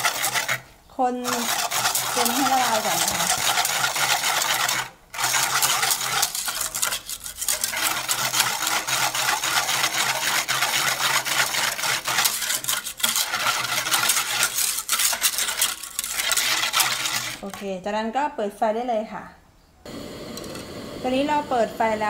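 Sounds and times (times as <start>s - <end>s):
wire whisk scraping metal pot: 0.0s - 17.8s.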